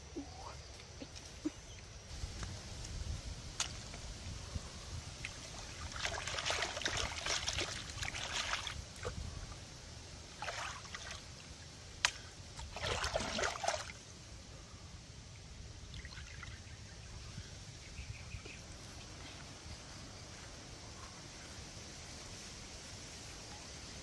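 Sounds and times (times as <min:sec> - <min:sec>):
water splashing: 0:05.2 - 0:09.6, 0:10.3 - 0:14.0.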